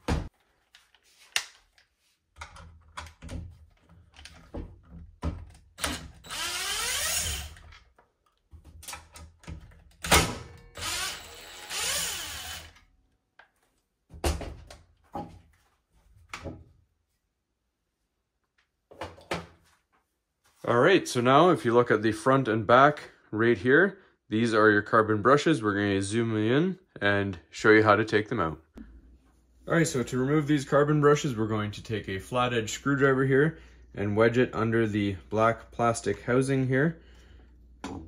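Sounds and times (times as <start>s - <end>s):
power driver whining: 10.6s - 12.8s.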